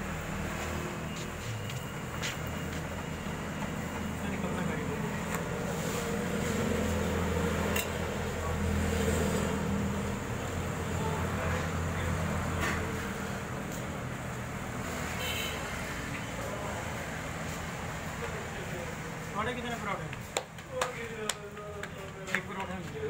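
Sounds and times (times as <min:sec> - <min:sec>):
low hum of street stall: 0:00.0 - 0:23.0.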